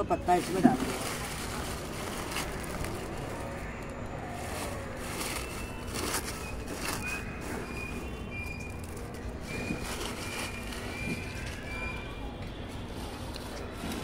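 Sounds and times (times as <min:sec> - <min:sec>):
dry leaves crackling: 0:00.0 - 0:14.0.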